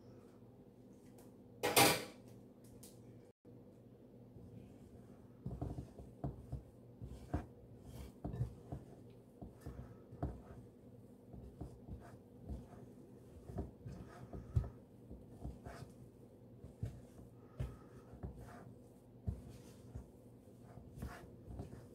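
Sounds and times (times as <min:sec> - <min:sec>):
soft thumps of kneading dough: 0:04.4 - 0:21.9.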